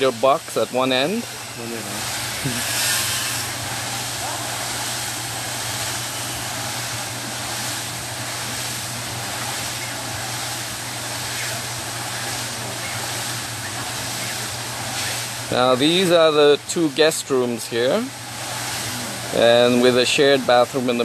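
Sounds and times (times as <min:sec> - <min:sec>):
drone propellers whirring: 0:01.0 - 0:15.4.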